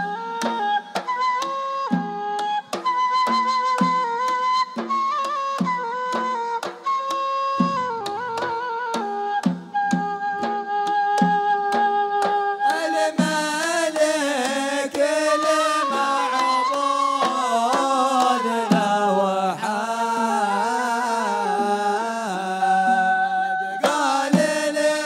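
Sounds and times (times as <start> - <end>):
drum beats: 0.0 - 23.0, 23.8 - 25.0
flute melody: 0.0 - 25.0
men singing: 12.7 - 25.0.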